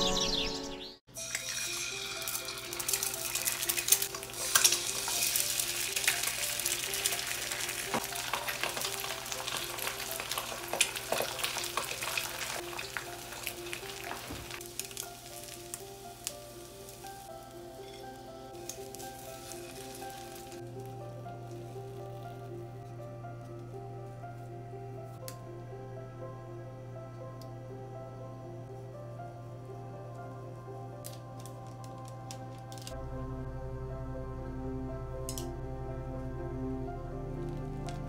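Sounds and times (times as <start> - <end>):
eggs sizzling and popping in pan: 1.2 - 23.9, 30.1 - 33.0
chopsticks working eggs in pan: 1.2 - 24.0, 30.1 - 33.0.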